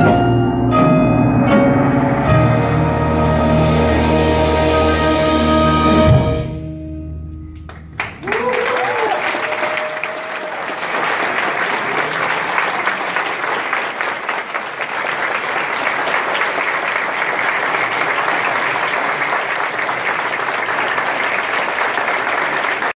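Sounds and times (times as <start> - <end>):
audience applause: 7.7 - 23.0.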